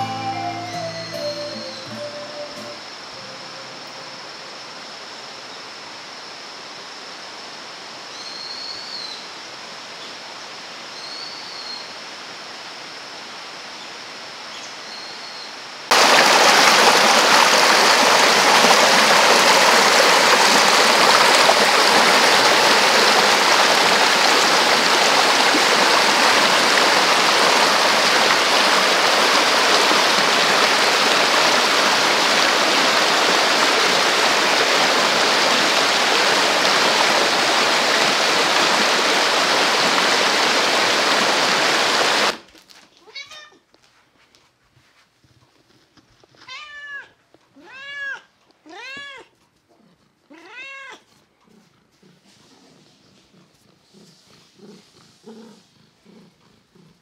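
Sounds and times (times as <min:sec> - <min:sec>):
quiet outdoor ambience: 0:00.0 - 0:33.5, 0:42.3 - 0:57.0
stream rushing over rocks: 0:15.9 - 0:42.5.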